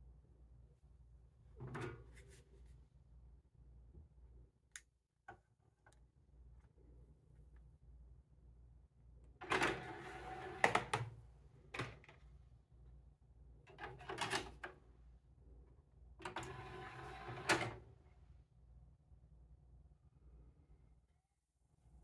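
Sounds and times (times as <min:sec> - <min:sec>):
disc tray motoring: 0:09.4 - 0:11.1.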